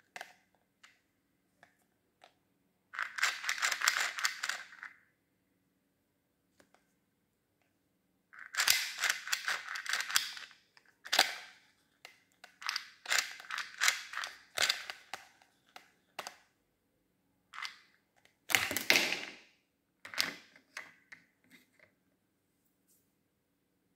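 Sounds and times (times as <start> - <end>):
plastic parts clicking and clattering: 3.0 - 5.0, 8.4 - 16.5, 17.6 - 19.4, 20.0 - 21.9.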